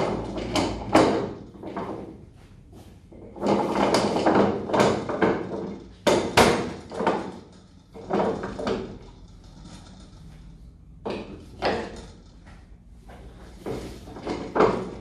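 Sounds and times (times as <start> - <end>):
clunks: 3.1 - 15.0.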